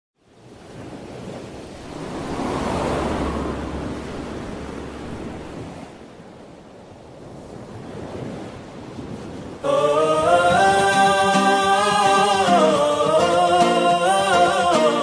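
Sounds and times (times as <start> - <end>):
rushing noise: 1.5 - 6.2
low steady hum: 1.8 - 6.1.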